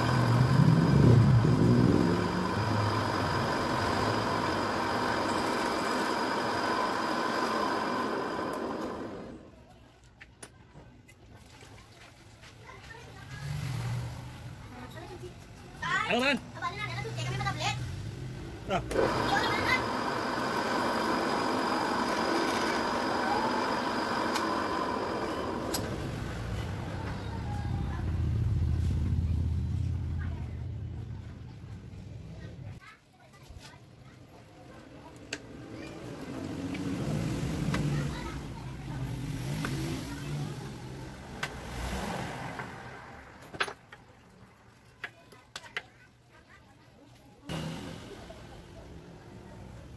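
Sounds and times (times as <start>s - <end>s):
vehicle engine passing by: 0.0s - 4.5s, 13.1s - 15.3s, 16.8s - 19.6s, 25.4s - 32.5s, 35.4s - 44.6s, 47.5s - 49.9s
drill press whining: 0.0s - 9.5s, 18.9s - 27.2s.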